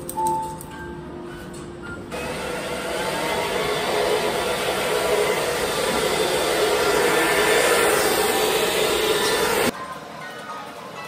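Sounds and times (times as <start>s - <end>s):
hair dryer blowing: 2.1s - 9.7s.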